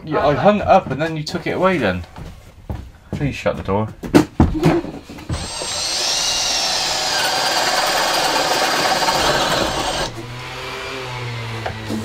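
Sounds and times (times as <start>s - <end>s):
power drill boring through wood: 5.2s - 12.0s.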